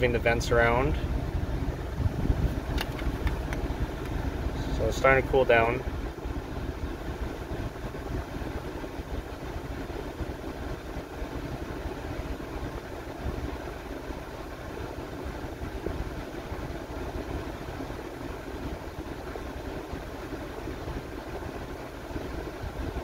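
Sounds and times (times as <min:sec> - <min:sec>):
blower fan pushing air: 0:00.0 - 0:23.0
engine idling: 0:00.0 - 0:23.0.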